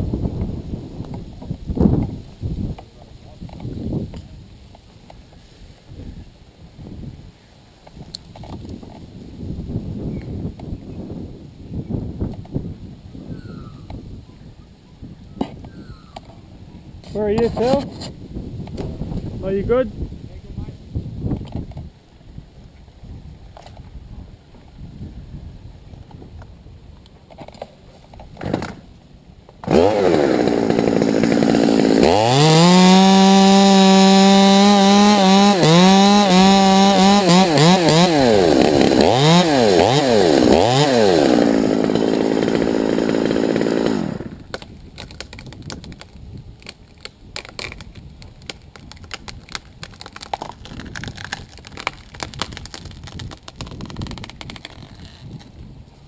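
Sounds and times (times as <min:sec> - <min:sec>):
chainsaw cutting wood: 0:17.1 - 0:18.1, 0:28.3 - 0:28.9, 0:29.6 - 0:55.5.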